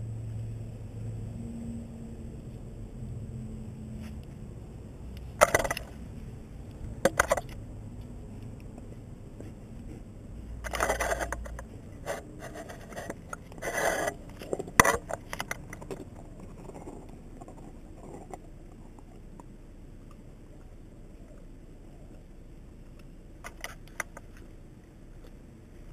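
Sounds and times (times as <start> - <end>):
ice scraping on stone: 10.6 - 18.5.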